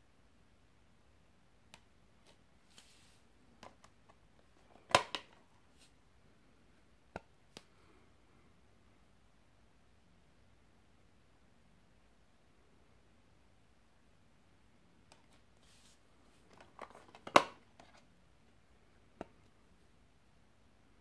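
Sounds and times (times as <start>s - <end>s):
plastic disc case clicks: 4.8s - 5.4s, 16.5s - 17.6s.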